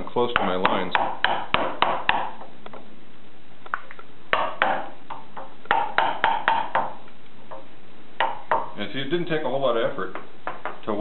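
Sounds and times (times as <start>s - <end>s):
wooden mallet striking a chisel: 0.3s - 2.8s, 4.3s - 8.8s, 10.1s - 10.8s.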